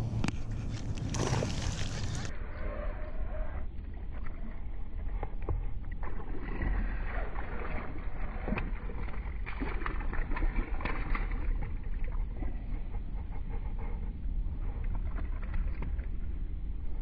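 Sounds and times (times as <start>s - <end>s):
fish splashing in water: 1.0s - 2.3s, 6.2s - 12.1s.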